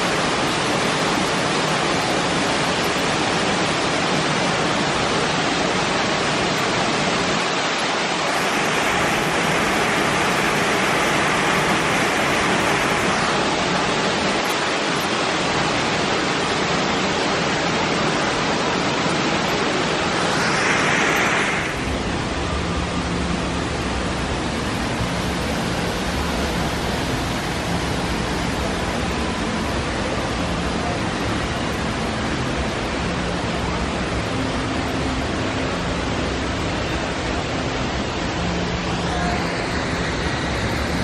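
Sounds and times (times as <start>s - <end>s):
running water rushing: 0.0s - 41.0s
low hum: 19.0s - 41.0s.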